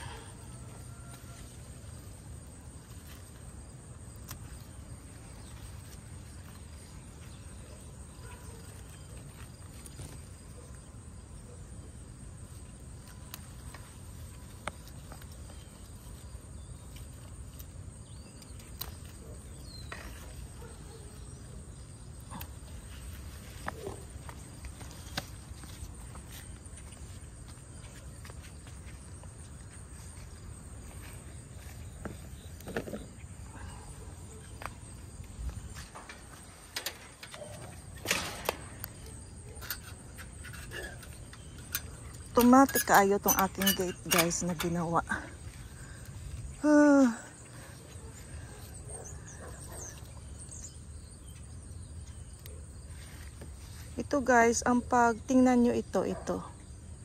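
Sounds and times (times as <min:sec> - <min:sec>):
low outdoor hum: 0:00.0 - 0:57.0
vines rustling: 0:12.4 - 0:50.6
pruning shears snipping: 0:36.7 - 0:45.0.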